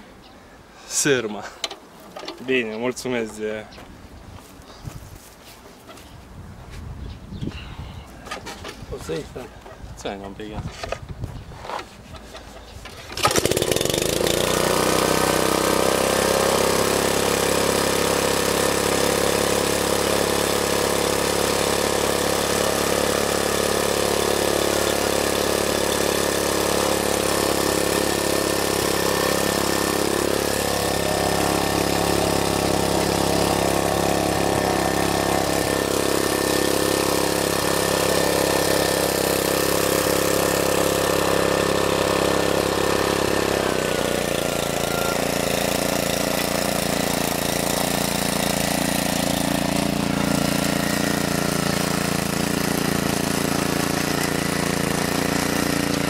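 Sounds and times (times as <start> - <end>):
pull rope starting engine: 12.9 - 56.0
small petrol engine running: 13.0 - 56.0.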